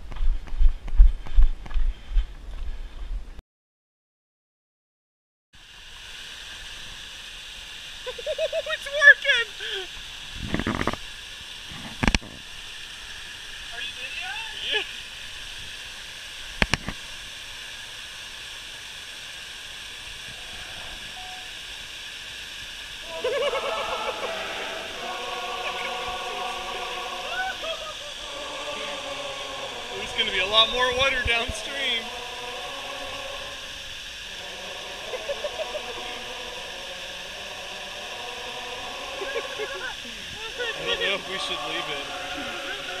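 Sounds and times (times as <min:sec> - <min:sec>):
water rushing from dam: 0:12.4 - 0:43.0.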